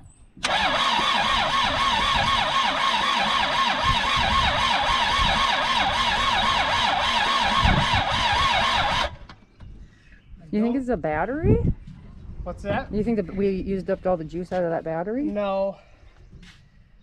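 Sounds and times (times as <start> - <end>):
starter motor cranking engine: 0.4 - 9.4.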